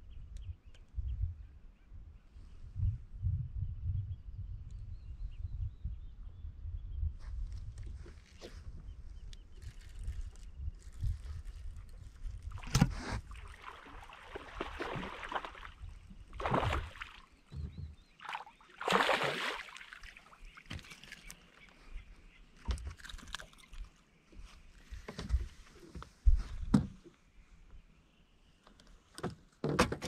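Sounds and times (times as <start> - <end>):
fish splashing at water surface: 12.6 - 17.3, 18.2 - 20.8.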